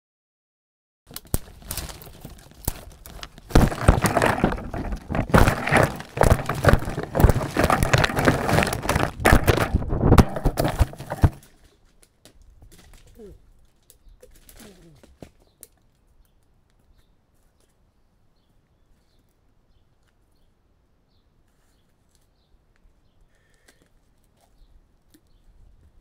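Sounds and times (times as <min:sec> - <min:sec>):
crackling and rustling: 0:01.1 - 0:17.8
sharp knocks: 0:03.5 - 0:11.4.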